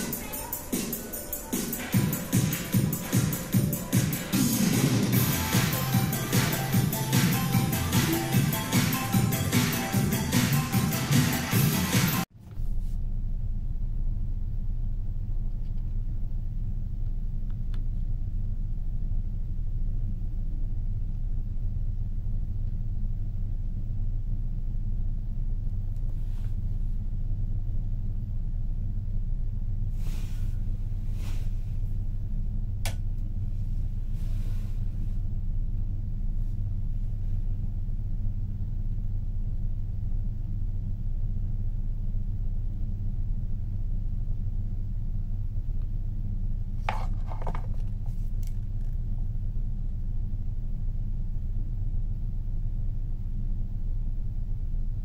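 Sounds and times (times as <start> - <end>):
ferry engine drone: 0.0 - 55.0
click: 15.5 - 16.0, 17.0 - 17.9, 32.8 - 33.3
faint rustles: 29.9 - 32.1, 33.4 - 35.4.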